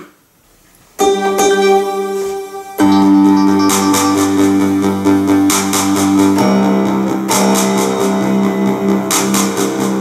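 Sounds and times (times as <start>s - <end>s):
synthesizer chords: 1.0s - 10.0s
steady ticking rhythm: 2.8s - 10.0s.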